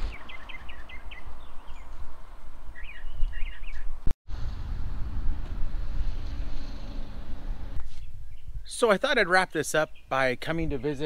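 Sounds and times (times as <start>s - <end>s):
small birds chirping: 0.0s - 2.1s, 2.7s - 4.0s, 7.8s - 11.0s
wind buffeting microphone: 0.0s - 8.7s.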